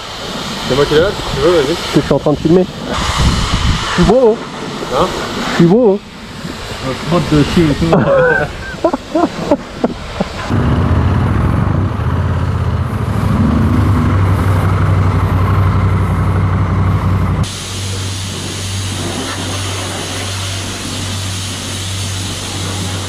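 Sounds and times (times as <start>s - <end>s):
pressure washer spraying: 0.0s - 23.0s
motorcycle engine running: 10.5s - 18.0s.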